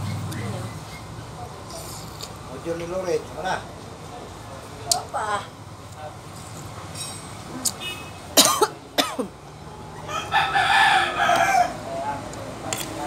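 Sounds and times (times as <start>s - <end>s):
rooster crowing: 9.9s - 12.1s.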